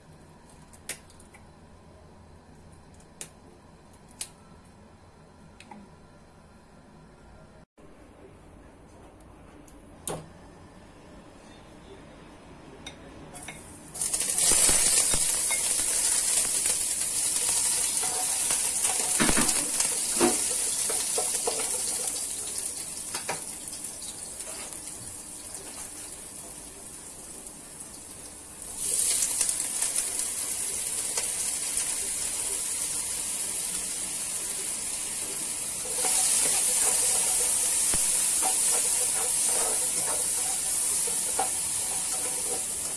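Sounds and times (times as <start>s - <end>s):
oil sizzling in a wok: 13.8s - 42.9s.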